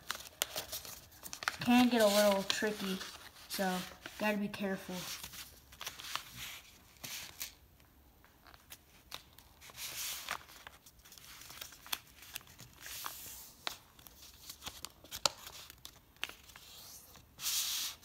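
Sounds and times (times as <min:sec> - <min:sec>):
paper fold crackles: 0:00.0 - 0:07.6, 0:08.4 - 0:18.0
paper rustling and crinkling: 0:00.0 - 0:07.6, 0:08.4 - 0:18.0.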